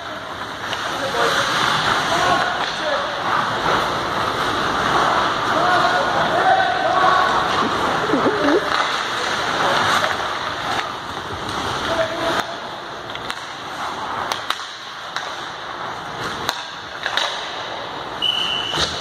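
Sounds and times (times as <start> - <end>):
sticks striking pucks: 0.1 - 18.1
skates scraping on ice: 0.1 - 18.2
whistle blast: 18.2 - 18.9.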